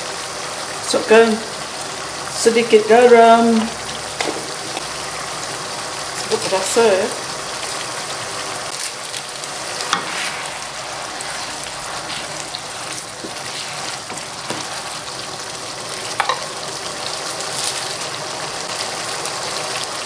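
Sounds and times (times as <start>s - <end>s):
paste bubbling and sizzling in oil: 0.0s - 20.0s
spatula stirring: 9.7s - 16.6s.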